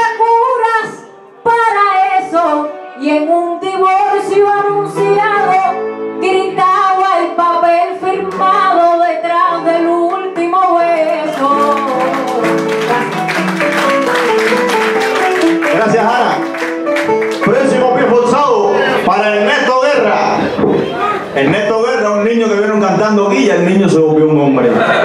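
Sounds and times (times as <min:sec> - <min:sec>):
woman singing: 0:01.5 - 0:13.4
applause: 0:10.9 - 0:17.9.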